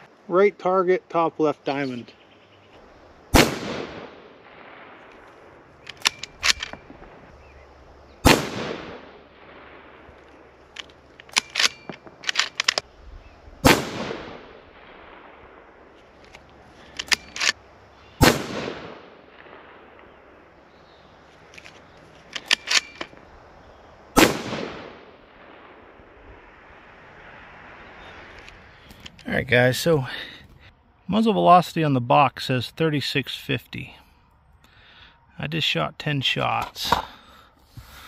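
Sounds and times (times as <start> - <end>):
rifle shots: 3.3 - 7.3, 8.2 - 12.9, 13.6 - 26.3
rifle bolt clicking: 5.8 - 6.8, 10.7 - 12.8, 16.2 - 17.6, 21.5 - 23.2.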